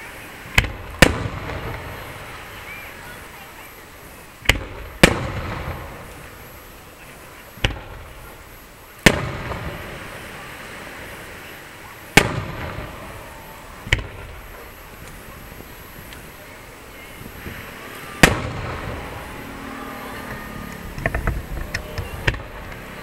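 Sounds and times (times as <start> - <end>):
firework shells bursting: 0.5 - 2.4, 4.4 - 6.5, 7.5 - 10.3, 12.1 - 16.4, 17.3 - 19.3.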